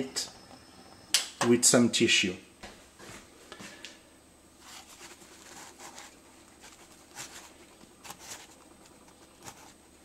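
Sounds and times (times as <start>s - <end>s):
paper towel rustling: 4.6s - 9.8s.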